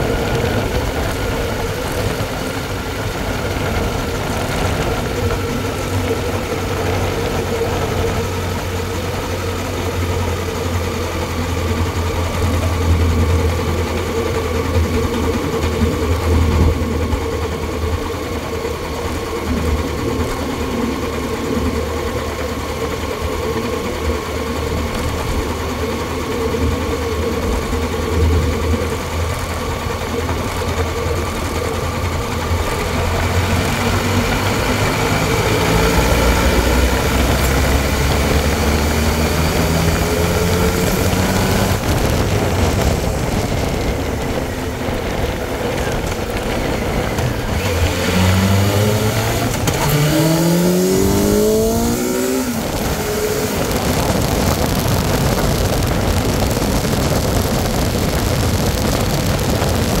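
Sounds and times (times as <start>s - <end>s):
wind rush over microphone: 0.0s - 10.3s, 19.2s - 60.0s
motorcycle engine revving: 0.0s - 60.0s.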